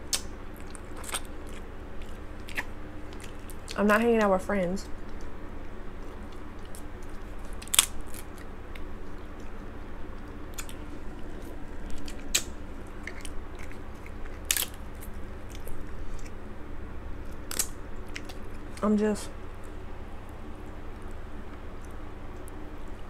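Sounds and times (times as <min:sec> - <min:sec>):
close-up chewing: 0:00.0 - 0:16.5, 0:17.1 - 0:18.8
crab shell cracking: 0:04.9 - 0:09.6, 0:10.2 - 0:16.4, 0:17.2 - 0:18.8.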